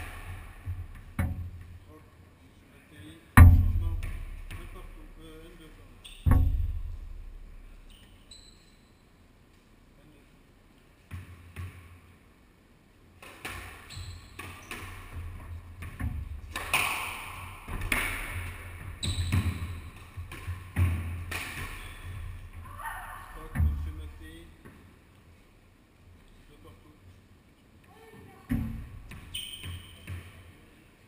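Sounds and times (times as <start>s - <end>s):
ball bouncing: 0.0s - 1.7s, 3.4s - 4.8s, 6.0s - 8.1s, 13.2s - 24.8s, 28.5s - 30.4s
squash ball hitting rackets and walls: 0.0s - 1.8s, 3.4s - 5.3s, 6.0s - 8.2s, 11.0s - 12.1s, 13.2s - 24.9s, 28.5s - 30.6s.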